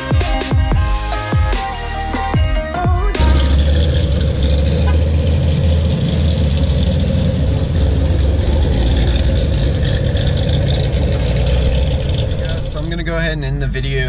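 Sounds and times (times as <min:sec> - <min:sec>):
cars rumbling past at low revs: 0:03.2 - 0:14.0.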